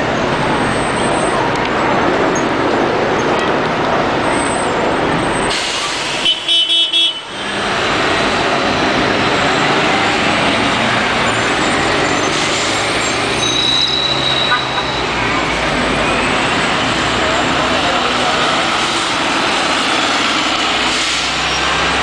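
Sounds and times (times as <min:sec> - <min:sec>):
street traffic noise: 0:00.0 - 0:22.0
vehicle horn toots: 0:06.2 - 0:07.4, 0:13.4 - 0:15.0
bus driving past: 0:07.2 - 0:22.0.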